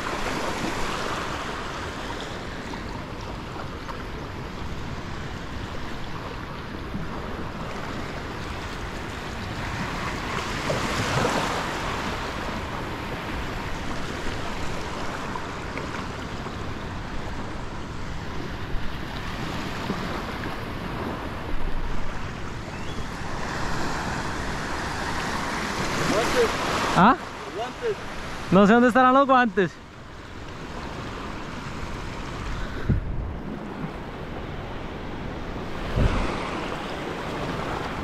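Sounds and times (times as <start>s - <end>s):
breaking surf: 0.0s - 38.0s
small waves washing: 0.0s - 38.0s
water splashes: 23.1s - 29.6s
wind on microphone: 30.6s - 38.0s.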